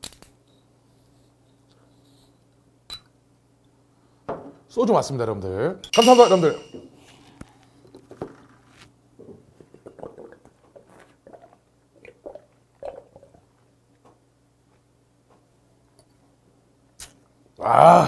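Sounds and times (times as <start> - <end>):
person gulping and swallowing: 9.2 - 13.6.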